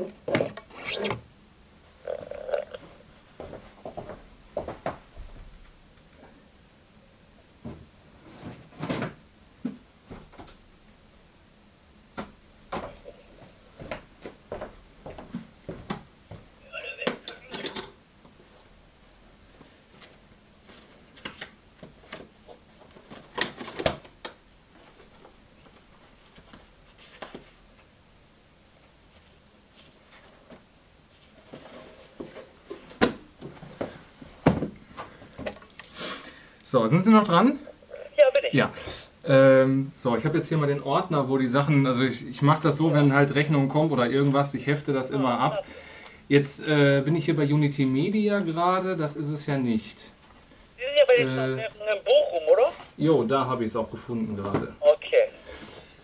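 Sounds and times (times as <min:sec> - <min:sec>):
paper rustle: 0:19.9 - 0:22.3.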